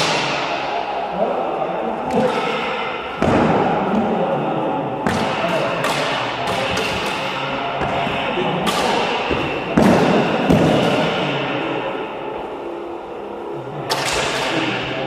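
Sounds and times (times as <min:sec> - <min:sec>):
plastic blades clashing: 0:05.1 - 0:07.4.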